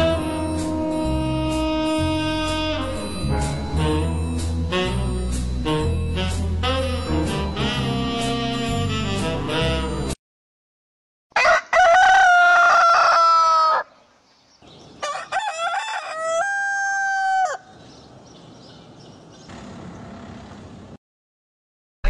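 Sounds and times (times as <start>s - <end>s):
rooster crowing: 11.3s - 14.0s, 15.0s - 17.7s.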